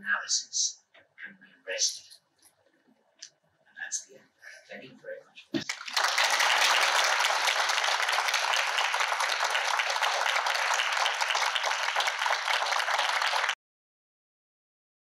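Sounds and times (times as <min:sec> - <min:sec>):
audience applauding: 0:05.6 - 0:13.6.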